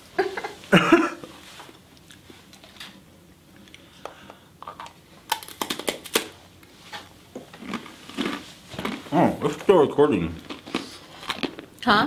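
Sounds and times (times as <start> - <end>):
crisp snack crunching: 5.3 - 6.3, 7.6 - 9.6, 10.3 - 11.9.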